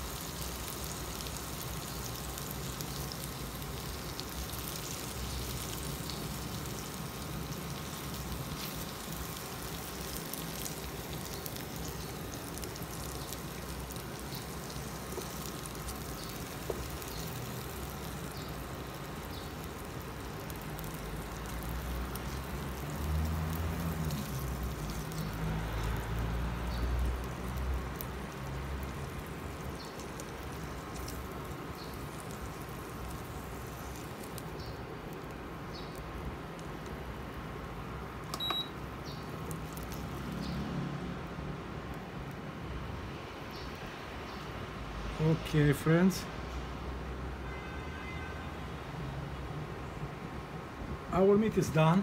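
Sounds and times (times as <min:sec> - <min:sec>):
chicken sizzling in hot oil: 0:00.0 - 0:41.0.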